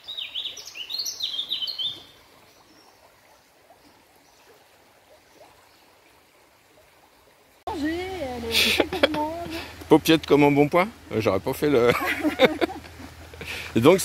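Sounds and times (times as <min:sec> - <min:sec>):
songbird chirping and trilling: 0:00.0 - 0:03.5.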